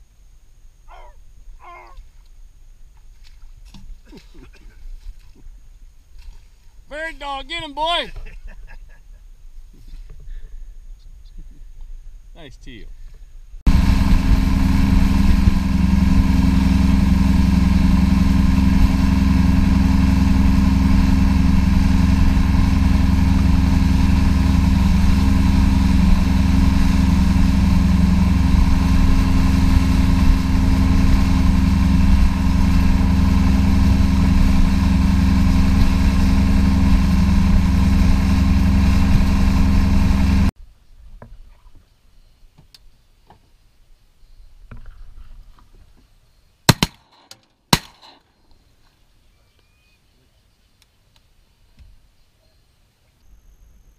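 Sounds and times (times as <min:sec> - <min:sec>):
boat motor droning: 0:13.7 - 0:40.5.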